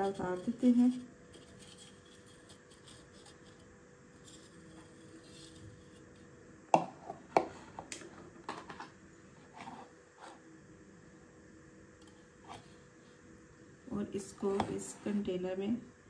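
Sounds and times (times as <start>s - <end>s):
knife scraping inside a pot: 0.0s - 6.2s.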